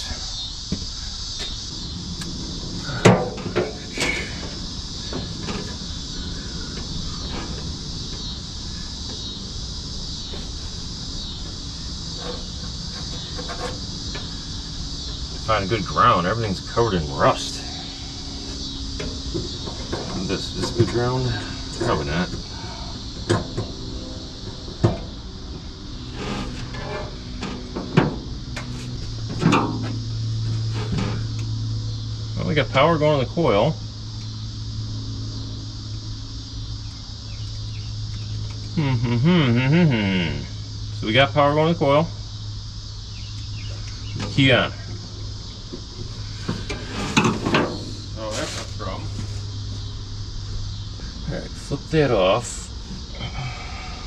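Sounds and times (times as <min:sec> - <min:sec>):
insects chirring: 0:00.0 - 0:54.0
low steady hum: 0:00.0 - 0:54.0.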